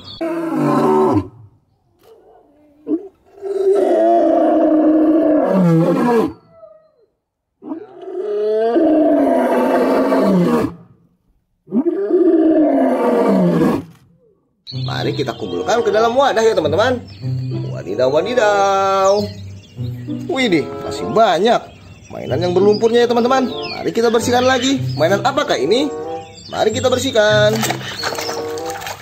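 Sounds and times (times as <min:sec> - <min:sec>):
lion roaring: 0:00.2 - 0:01.5, 0:02.3 - 0:06.4, 0:07.6 - 0:10.9, 0:11.7 - 0:14.3.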